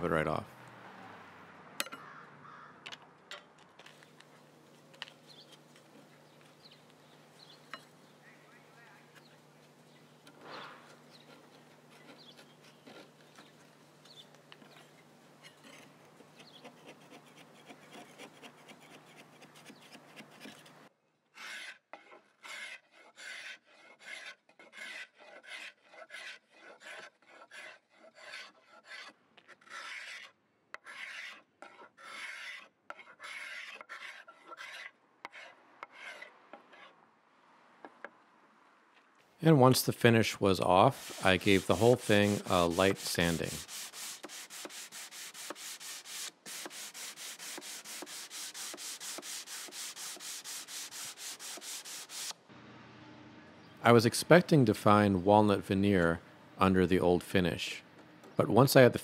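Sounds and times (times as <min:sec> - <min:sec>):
paint scraper scraping wood: 0:09.2 - 0:37.0, 0:39.6 - 0:52.4
small blade scraping: 0:10.2 - 0:20.8, 0:21.4 - 0:37.0, 0:40.8 - 0:52.4.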